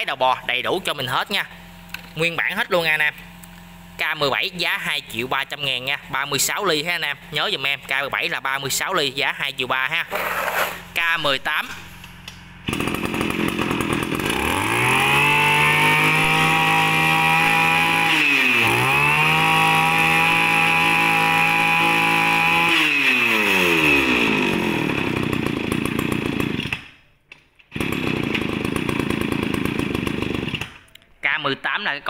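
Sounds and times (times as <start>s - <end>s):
brush cutter engine revving: 10.0s - 26.9s, 27.7s - 30.8s.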